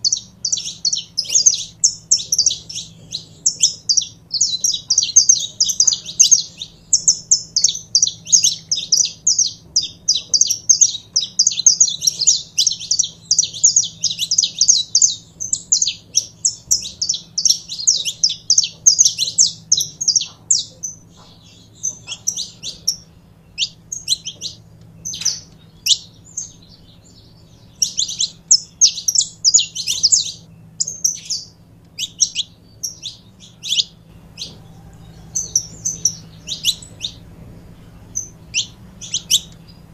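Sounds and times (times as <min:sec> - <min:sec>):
finch chirping song: 0:00.0 - 0:39.9.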